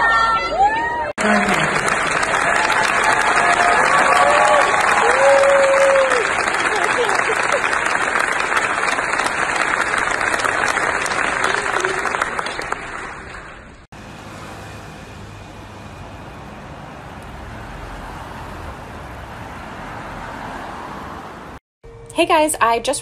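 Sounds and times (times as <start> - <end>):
large audience applauding: 1.2 - 13.9
low traffic rumble: 1.2 - 21.6.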